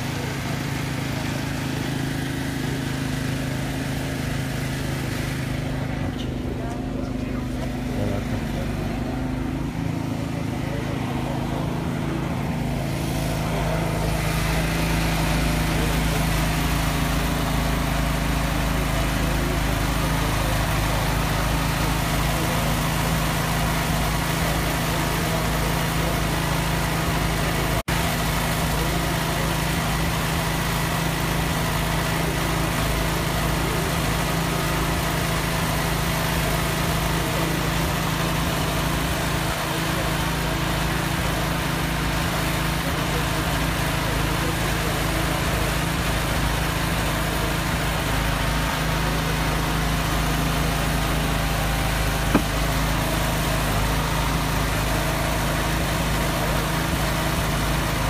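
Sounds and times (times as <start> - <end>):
engine idling: 0.0 - 58.0.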